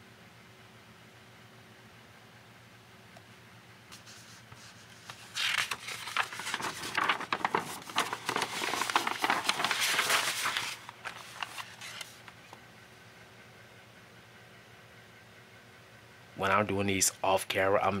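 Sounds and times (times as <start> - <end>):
paper page turning: 3.9 - 12.6.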